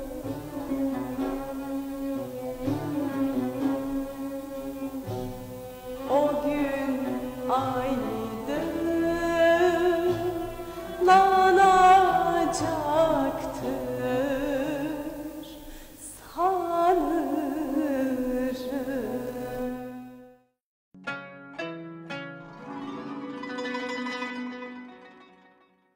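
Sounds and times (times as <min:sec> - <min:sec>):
instrumental accompaniment: 0:00.0 - 0:14.6, 0:21.0 - 0:25.9
woman singing with vibrato: 0:00.0 - 0:20.2.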